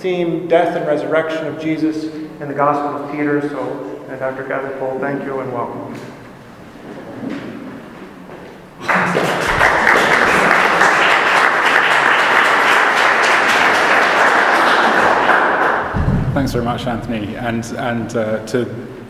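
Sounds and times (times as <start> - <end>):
audience applauding: 8.8 - 16.0
person speaking: 16.2 - 18.9.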